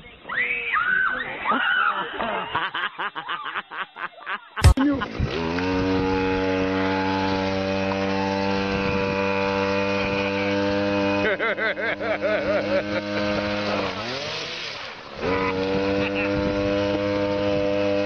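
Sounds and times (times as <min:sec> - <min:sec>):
outboard motor running: 0:04.7 - 0:18.0.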